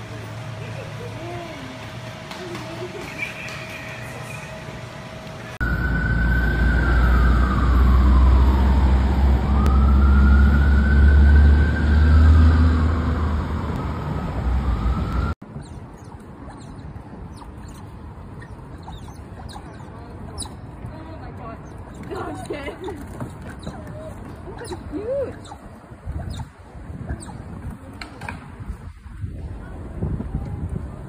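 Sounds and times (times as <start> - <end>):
emergency siren wailing: 5.5 - 15.4.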